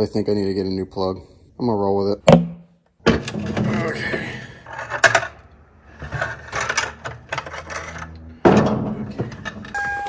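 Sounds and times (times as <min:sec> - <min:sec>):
loud metal clunk: 0:08.4 - 0:09.5.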